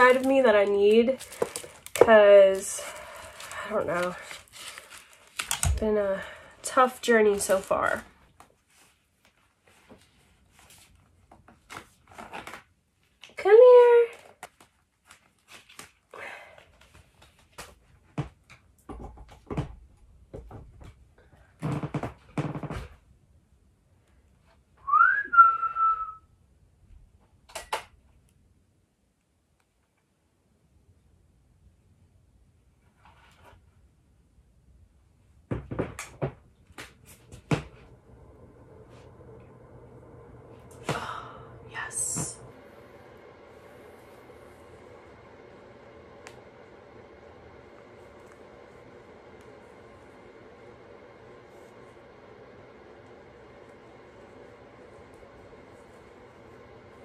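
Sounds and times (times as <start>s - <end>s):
power cord rustling: 0.0s - 8.8s, 35.9s - 57.0s
heater fan whirring: 0.0s - 12.6s, 13.2s - 22.8s, 34.8s - 57.0s.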